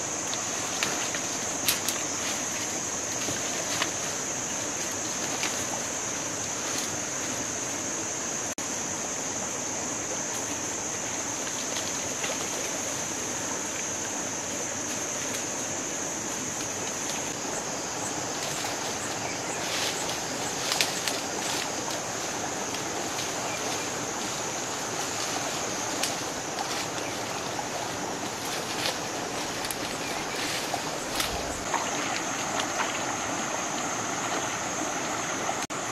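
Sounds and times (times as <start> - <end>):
high-pitched insect drone: 0.0 - 35.9
twigs crackling: 0.4 - 4.1, 18.4 - 32.8
footsteps through dry leaves: 22.9 - 31.8.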